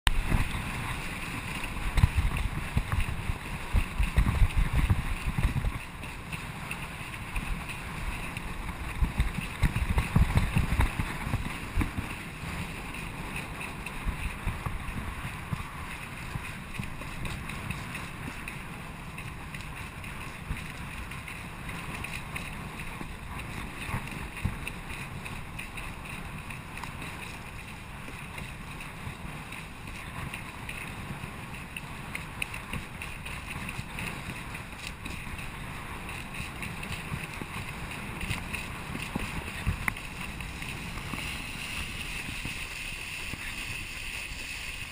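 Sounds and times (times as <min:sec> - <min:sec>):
water rushing under board: 0:00.1 - 0:44.9
wind buffeting microphone: 0:00.1 - 0:44.9.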